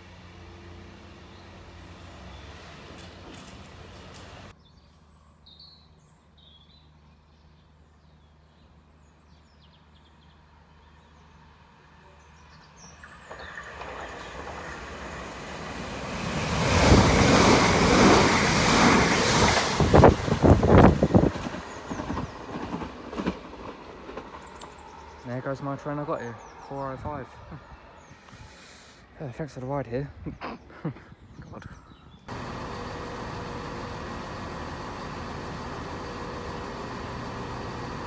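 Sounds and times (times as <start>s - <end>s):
train wheel and rail noise: 0.0s - 4.6s, 10.4s - 28.9s, 32.3s - 38.0s.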